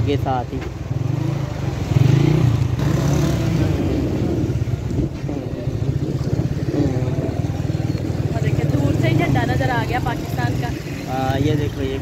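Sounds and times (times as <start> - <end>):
street traffic: 0.0 - 12.0
motorcycle engine running: 0.1 - 12.0.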